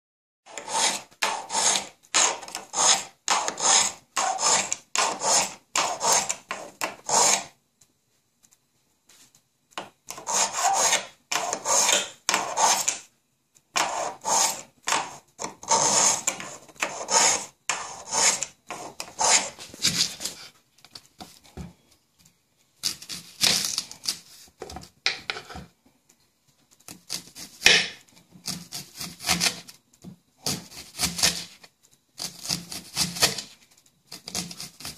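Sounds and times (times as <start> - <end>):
knife through knife sharpener: 0.5 - 7.5, 10.1 - 13.0, 13.8 - 20.4.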